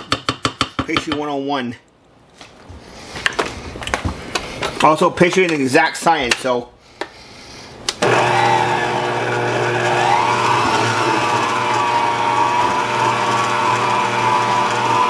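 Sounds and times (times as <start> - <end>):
stand mixer motor humming: 8.0 - 15.0.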